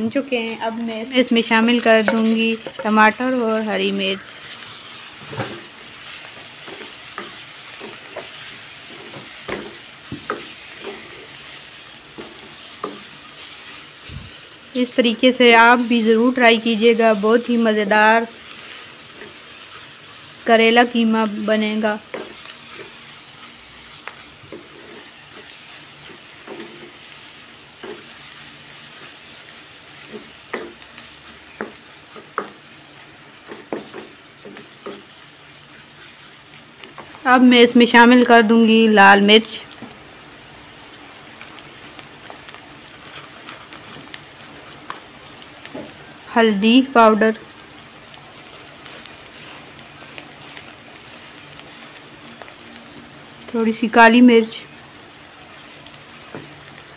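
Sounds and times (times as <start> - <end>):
frying sizzle: 0.0 - 56.9
spatula knocking and scraping pan: 1.8 - 3.2, 6.3 - 11.3, 22.0 - 23.0, 24.1 - 27.0, 27.7 - 28.2, 30.0 - 32.6, 33.4 - 35.1.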